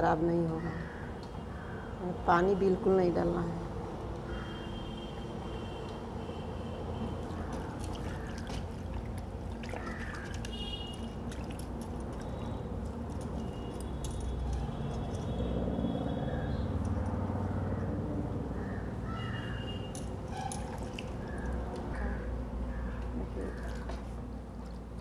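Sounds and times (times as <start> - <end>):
water sloshing in a steel bucket: 6.8 - 15.6, 19.9 - 22.0, 23.3 - 25.0.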